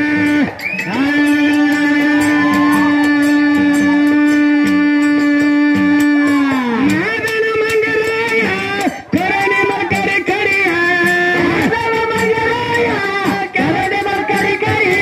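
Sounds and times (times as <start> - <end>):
person singing long high note: 0.0 - 7.6.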